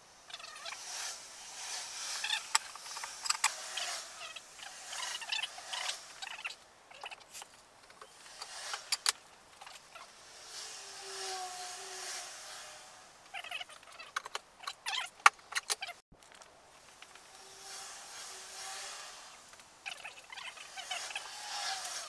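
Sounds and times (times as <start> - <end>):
wood and metal clicking and knocking: 13.5 - 17.3.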